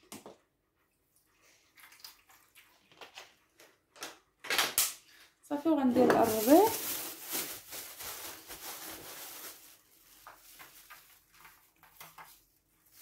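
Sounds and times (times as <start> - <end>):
plastic bag rustling and crinkling: 5.6 - 13.0.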